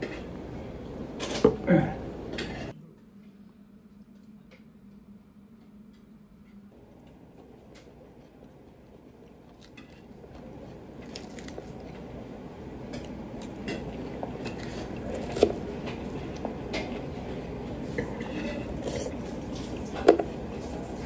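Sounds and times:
restaurant background noise: 0:00.0 - 0:21.0
person chewing crisp salad: 0:06.8 - 0:21.0.

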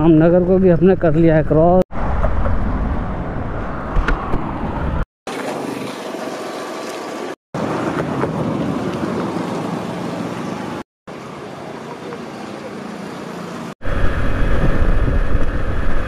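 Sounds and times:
steady outdoor noise: 0:00.0 - 0:16.0
deep rumble: 0:01.6 - 0:05.0, 0:13.8 - 0:16.0.

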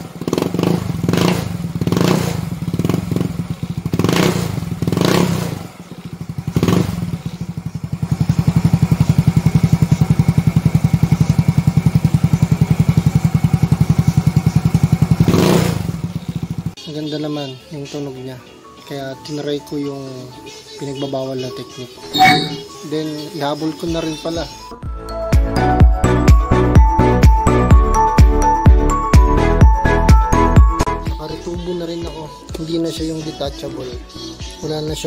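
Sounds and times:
scooter engine revving and idling: 0:00.0 - 0:16.8.

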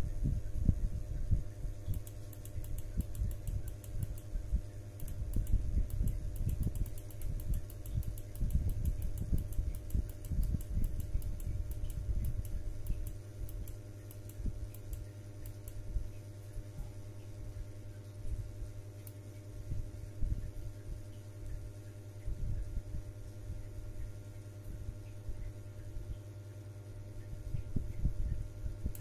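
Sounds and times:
steady hum: 0:00.0 - 0:29.0
mouse scroll wheel clicking: 0:05.0 - 0:15.0.

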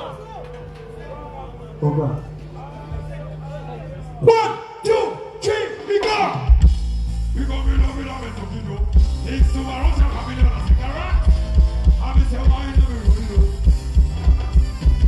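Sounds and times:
heavy bass: 0:05.2 - 0:15.0
pulsing kick-drum beat: 0:06.4 - 0:15.0.

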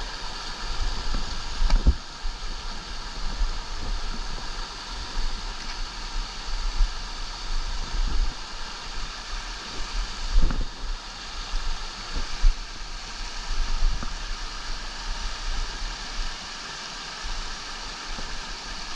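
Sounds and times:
wind buffeting microphone: 0:00.6 - 0:05.5, 0:09.6 - 0:10.9.

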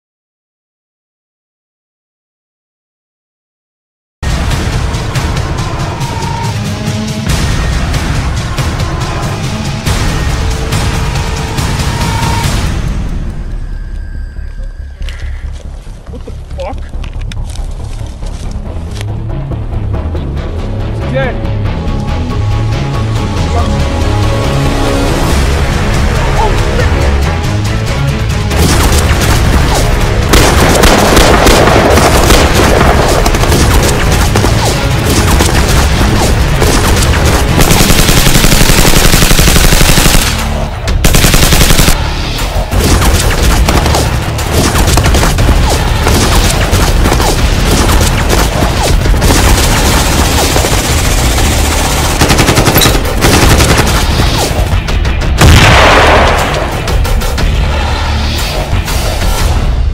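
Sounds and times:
rapid machine-gun fire: 0:28.5 - 0:42.0, 0:42.7 - 0:54.8.

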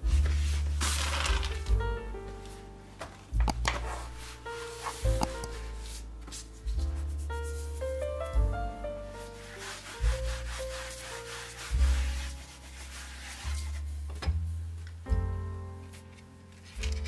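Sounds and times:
slow piano background music: 0:00.0 - 0:17.0
hand brushing flour on pastry: 0:03.9 - 0:08.1, 0:09.0 - 0:14.1.

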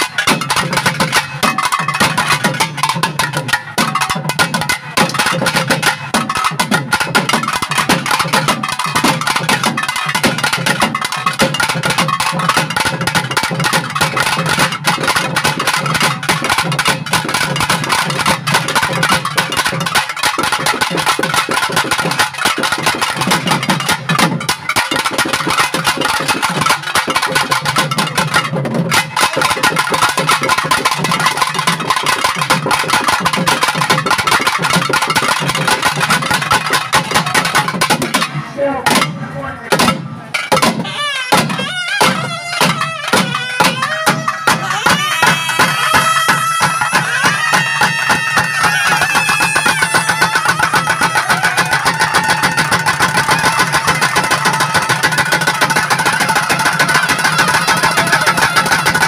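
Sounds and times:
rapid drumming: 0:00.0 - 0:59.0
sustained reed pipe melody: 0:40.8 - 0:59.0.

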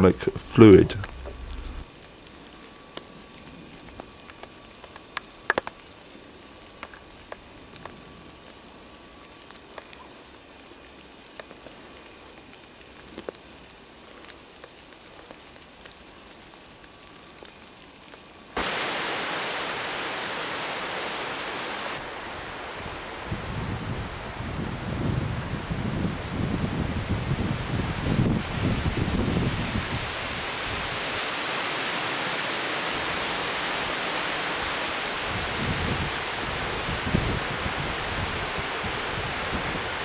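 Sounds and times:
even rushing noise: 0:00.0 - 0:01.9, 0:18.6 - 0:26.3
faint background hiss: 0:00.0 - 0:40.0.

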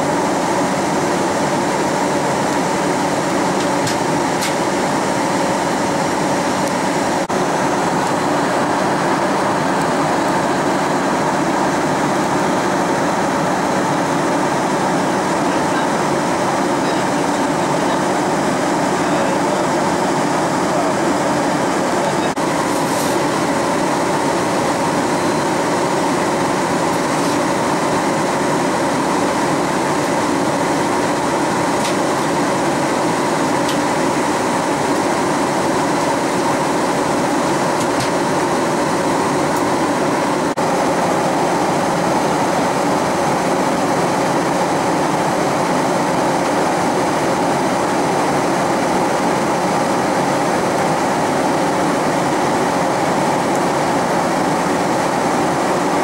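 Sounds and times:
jet engines humming: 0:00.0 - 0:56.0.

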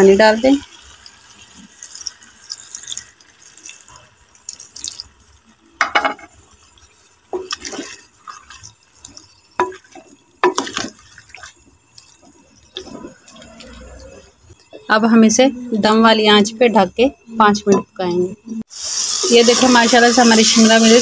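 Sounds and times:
vegetables squelching: 0:07.4 - 0:14.3
wooden spoon scraping clay pot: 0:12.7 - 0:14.4.

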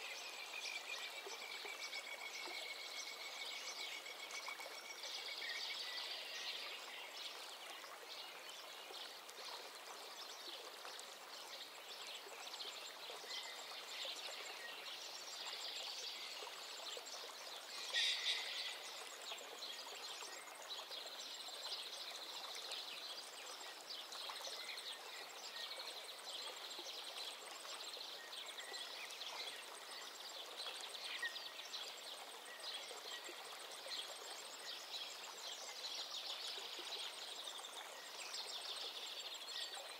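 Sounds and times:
birds chirping: 0:17.8 - 0:18.9.

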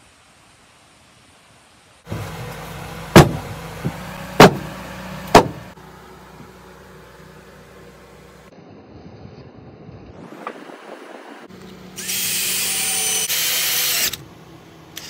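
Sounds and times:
sharp loud knocks: 0:03.1 - 0:05.7.

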